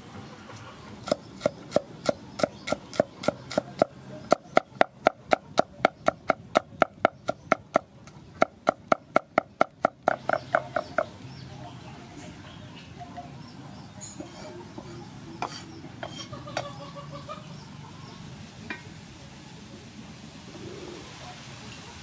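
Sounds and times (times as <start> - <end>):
knife chopping on wooden board: 1.1 - 11.1.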